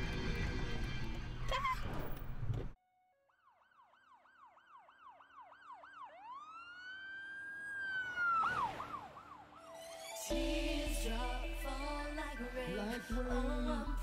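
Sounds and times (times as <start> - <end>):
music: 0.0 - 1.6, 9.8 - 14.0
emergency vehicle siren: 3.1 - 10.3.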